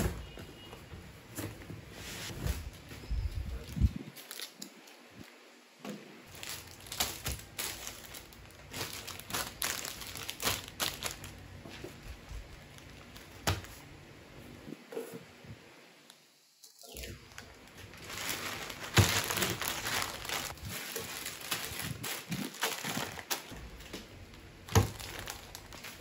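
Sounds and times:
plastic wrapping crinkling: 2.3 - 5.3, 6.3 - 13.8, 16.8 - 26.0.

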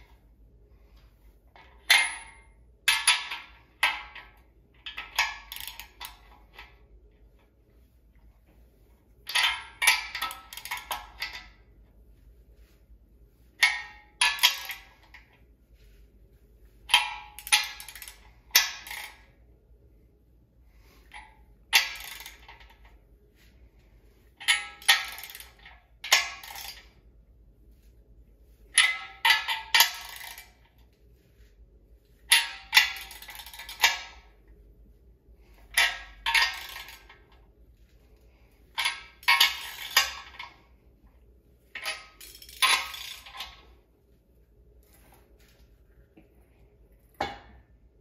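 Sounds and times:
wrench metallic cracks and clinks: 1.5 - 6.8, 9.2 - 11.6, 13.6 - 15.3, 16.9 - 19.3, 21.0 - 23.0, 24.4 - 27.0, 28.7 - 30.9, 32.3 - 34.3, 35.4 - 37.4, 38.7 - 40.7, 41.7 - 43.7.

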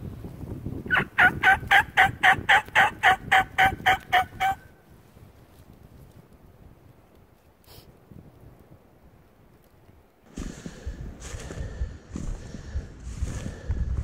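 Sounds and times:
turkey call notes: 0.9 - 4.7.

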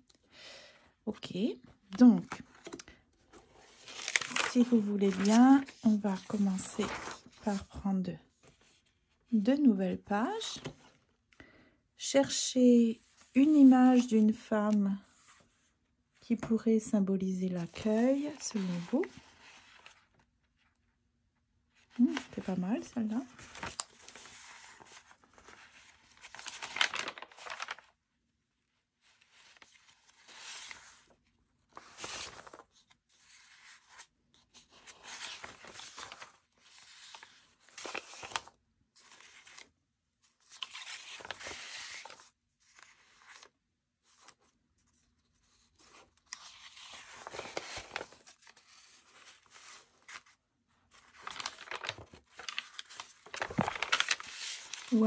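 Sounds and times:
paper rustling and sliding: 2.3 - 8.9, 17.7 - 20.2, 22.0 - 27.9, 29.0 - 39.7, 40.4 - 55.0.

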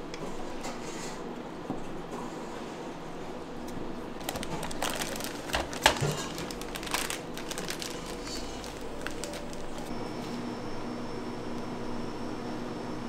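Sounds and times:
steady background noise: 0.0 - 11.6
small items clicking and knocking: 4.2 - 9.9.

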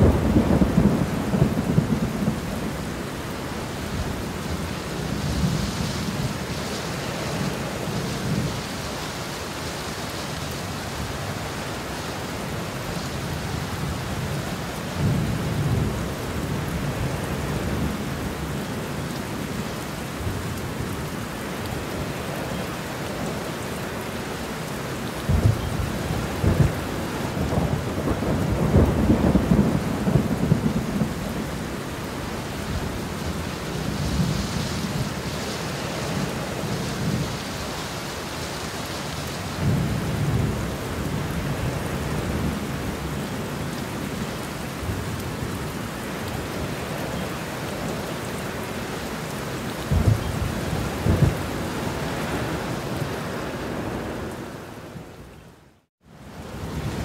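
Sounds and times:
thunder rumbling: 0.0 - 3.3, 25.2 - 38.0, 49.7 - 54.4
heavy rain falling: 0.0 - 57.0.

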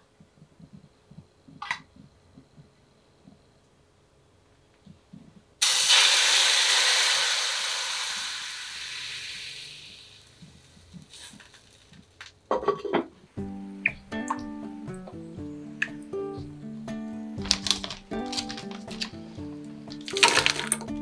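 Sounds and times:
stock sizzling in hot pan: 5.6 - 12.1.

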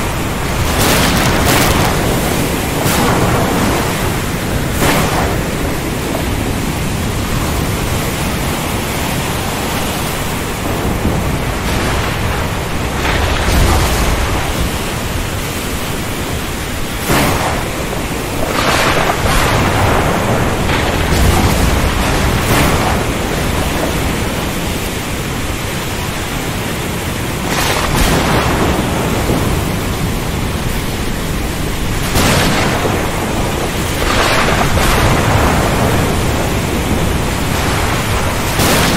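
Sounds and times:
heavy rain: 0.0 - 38.9
thunder cracking and rumbling: 0.0 - 38.9.

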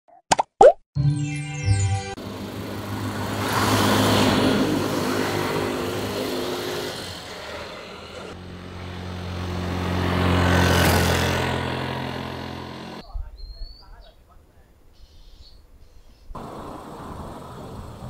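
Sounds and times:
vehicles passing on road: 2.2 - 13.0, 16.4 - 18.0.

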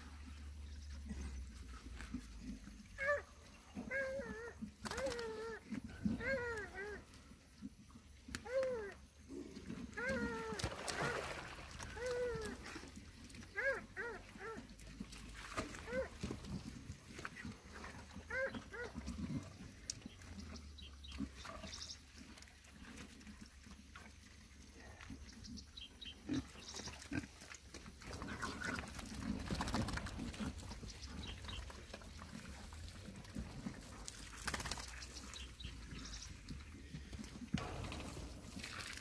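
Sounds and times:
pigs grunting and squealing: 2.4 - 7.1, 8.4 - 14.8, 17.3 - 19.8, 26.0 - 34.4, 35.4 - 39.0
hose splashing water: 10.1 - 13.0, 37.6 - 39.0.

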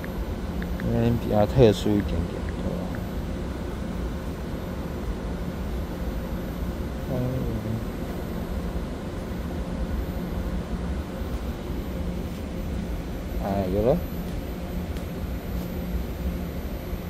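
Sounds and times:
electric train rumble and hum: 0.0 - 17.0
short pitched tone: 7.0 - 8.0.

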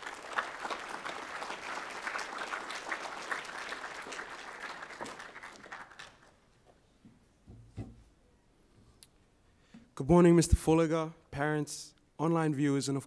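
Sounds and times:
audience clapping: 0.0 - 6.5.

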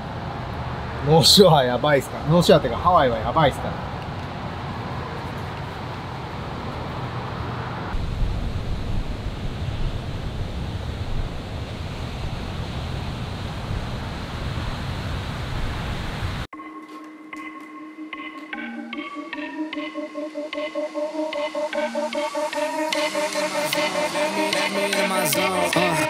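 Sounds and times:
wind buffeting microphone: 7.9 - 16.5
wind rushing: 7.9 - 16.5.

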